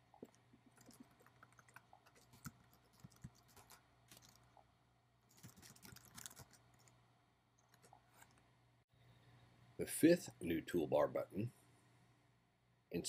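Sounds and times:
low steady hum: 0.0 - 13.0
keyboard typing: 0.1 - 4.6, 5.3 - 7.0.

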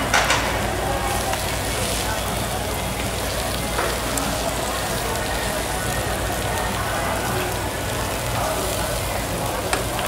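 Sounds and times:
meat sizzling on a grill plate: 0.0 - 10.0.

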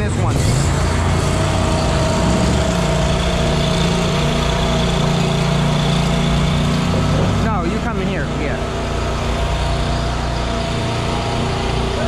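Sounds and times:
lawn mower engine running: 0.0 - 12.0.

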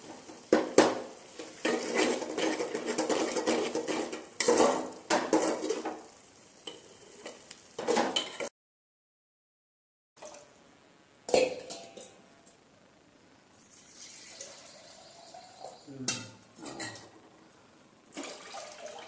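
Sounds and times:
food sizzling: 0.0 - 8.5, 13.5 - 19.0
metal ladle scraping pot: 1.5 - 5.9.

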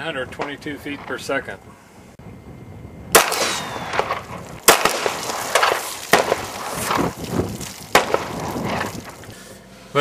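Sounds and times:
pistol shots with echo: 3.1 - 7.0, 7.9 - 8.5
light cracks: 3.2 - 9.4.

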